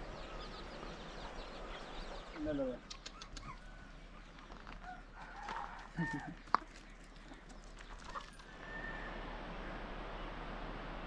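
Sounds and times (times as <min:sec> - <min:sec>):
chickens clucking: 0:01.2 - 0:08.5.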